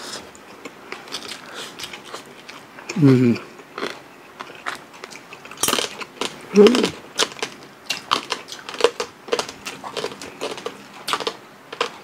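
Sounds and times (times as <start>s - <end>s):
crispy pork skin crunching: 3.7s - 12.0s.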